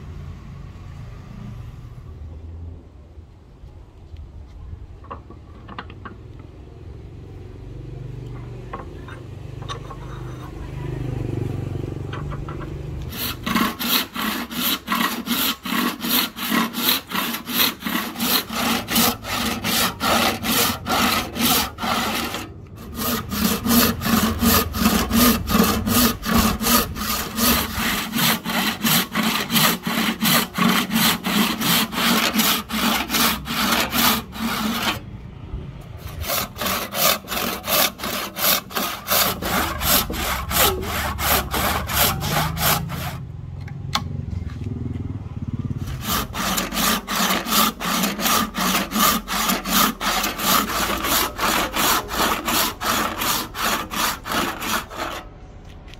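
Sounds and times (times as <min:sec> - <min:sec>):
hand saw cutting wood: 0:12.1 - 0:35.0, 0:36.0 - 0:43.2, 0:45.8 - 0:55.3.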